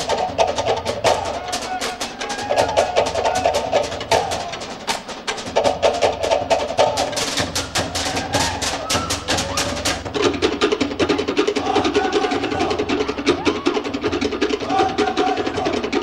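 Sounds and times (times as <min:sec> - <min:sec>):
deep drum beat: 0:00.0 - 0:16.0
wooden slit drums struck fast: 0:00.0 - 0:16.0.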